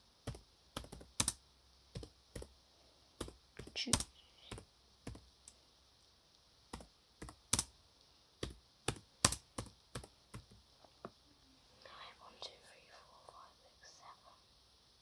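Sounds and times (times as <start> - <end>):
laptop keyboard typing: 0.2 - 2.6, 3.2 - 5.3, 6.7 - 7.7, 8.4 - 10.6.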